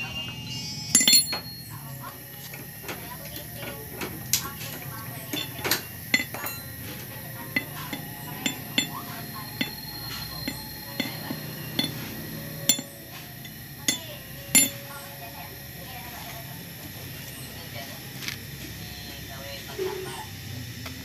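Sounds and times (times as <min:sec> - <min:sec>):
hand tool clinking on metal: 0:01.0 - 0:01.6, 0:05.2 - 0:14.8.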